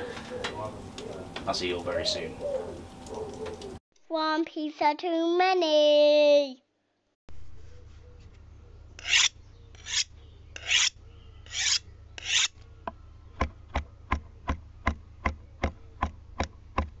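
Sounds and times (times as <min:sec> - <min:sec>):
rasping filing strokes: 0:09.0 - 0:12.6.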